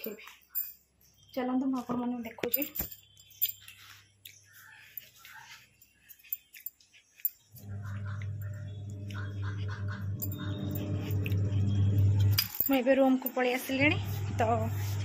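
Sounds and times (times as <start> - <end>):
low electric hum: 7.5 - 15.0.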